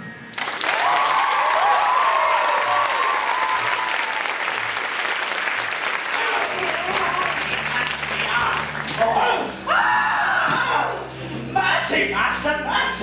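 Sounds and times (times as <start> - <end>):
audience cheering: 0.0 - 10.6
audience applauding: 0.3 - 9.2.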